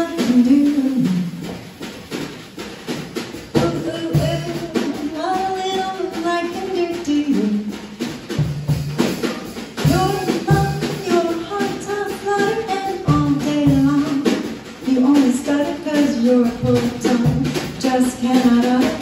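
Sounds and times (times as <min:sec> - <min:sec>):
woman singing into a microphone: 0:00.0 - 0:01.4, 0:03.5 - 0:07.8, 0:09.8 - 0:19.0
drums: 0:00.0 - 0:19.0.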